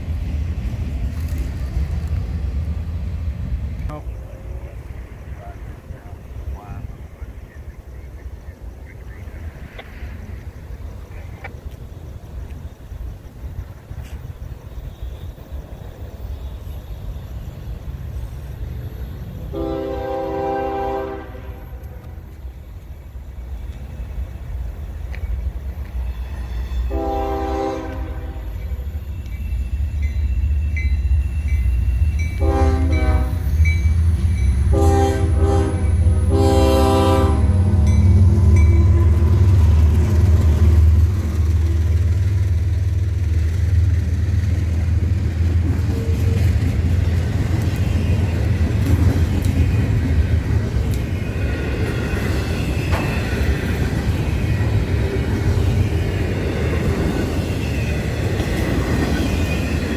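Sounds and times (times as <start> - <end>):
train rumbling past: 0.0 - 59.9
train air horn blasts: 19.4 - 22.2, 26.6 - 28.8, 32.3 - 33.9, 34.5 - 39.7.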